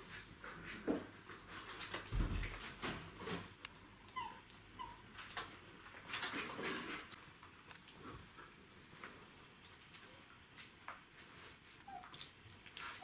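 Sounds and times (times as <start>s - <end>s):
knocks and scuffles: 2.0s - 3.1s
puppies whimpering: 4.1s - 5.1s, 11.8s - 13.0s.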